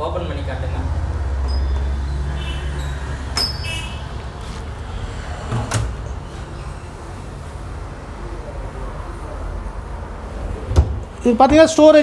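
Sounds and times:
small bells ringing: 1.4 - 4.1.

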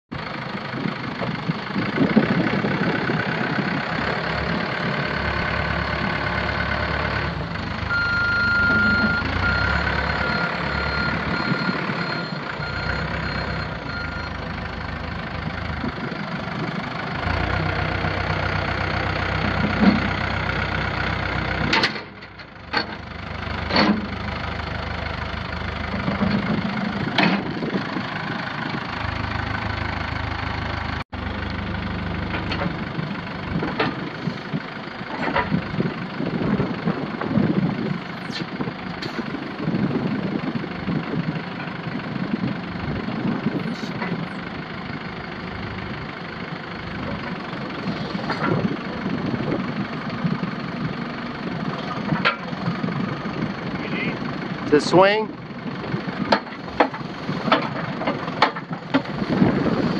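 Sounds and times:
diesel engine running: 0.1 - 59.9.

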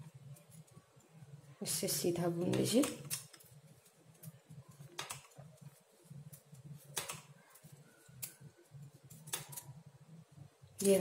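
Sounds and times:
knitting needles clicking: 2.4 - 9.7.

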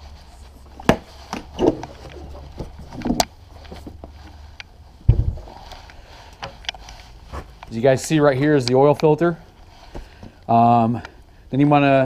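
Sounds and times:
heavy thump: 5.0 - 5.6.

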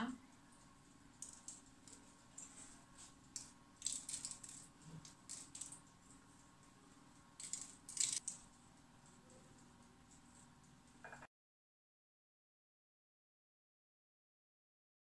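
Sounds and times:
seeds sprinkling: 7.4 - 8.4.

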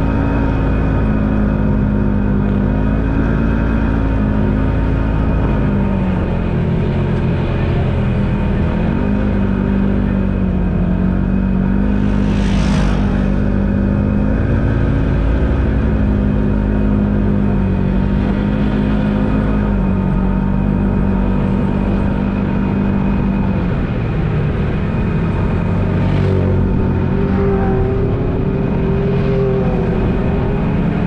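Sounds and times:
vehicle engine running: 0.0 - 31.0
brief rush of noise: 11.8 - 14.8.

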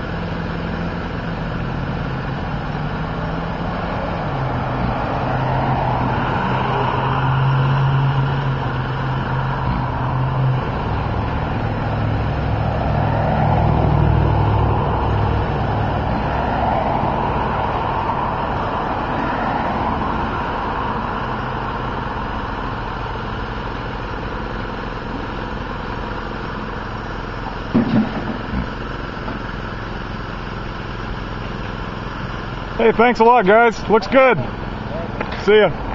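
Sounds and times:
street traffic: 0.0 - 35.9
vehicle engine humming: 0.0 - 35.9
sharp knocks: 27.7 - 28.7.

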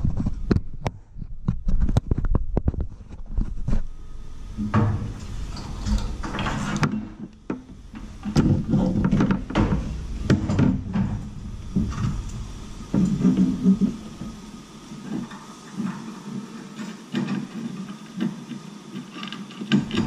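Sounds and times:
metal scraping and sliding: 2.0 - 18.4
sharp knocks and clicks: 4.6 - 14.4.

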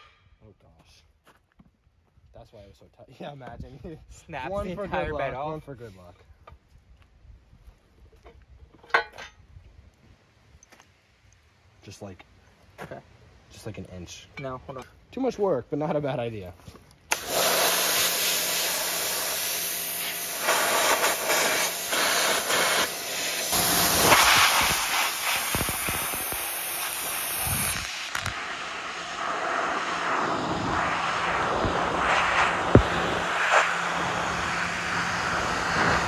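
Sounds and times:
pressure washer humming: 17.1 - 36.0
water jet hissing on metal: 17.1 - 36.0.

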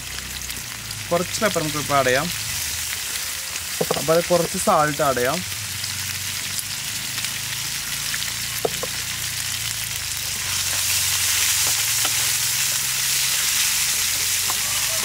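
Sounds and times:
chicken sizzling in hot oil: 0.0 - 15.0
wooden spatula tapping and scraping: 3.8 - 4.6, 8.6 - 9.0, 14.4 - 14.7.

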